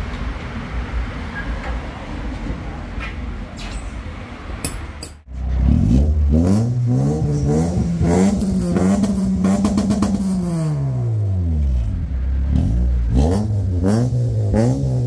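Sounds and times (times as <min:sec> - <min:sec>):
car engine revving: 0:05.3 - 0:15.0.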